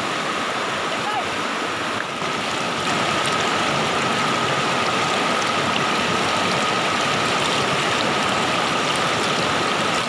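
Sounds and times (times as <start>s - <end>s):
water rushing over rocks: 0.0s - 10.0s.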